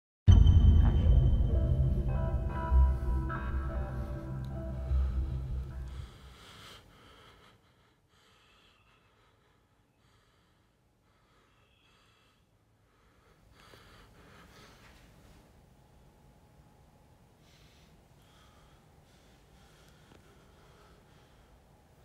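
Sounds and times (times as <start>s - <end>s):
low ominous music drone: 0.3s - 6.8s
person breathing: 2.2s - 16.1s, 17.4s - 22.0s.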